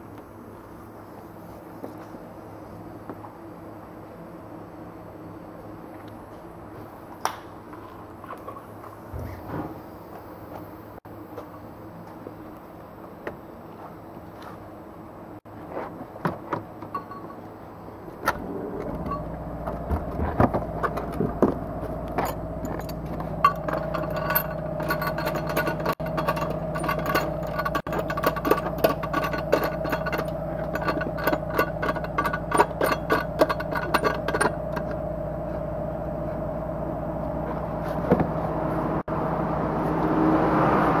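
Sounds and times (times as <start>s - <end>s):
steady machine hum: 16.9s - 40.2s
metallic clicks and rattles: 18.3s - 35.0s.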